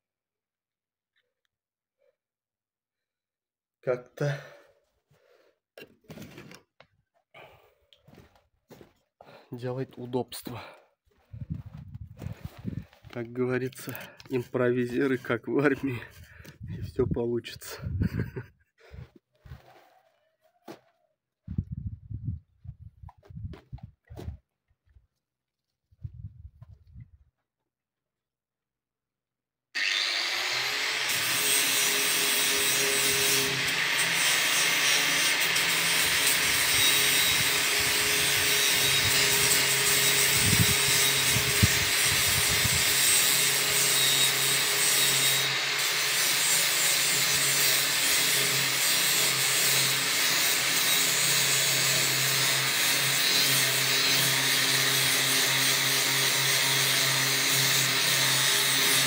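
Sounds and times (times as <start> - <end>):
angle grinder scouring metal: 29.8 - 59.0.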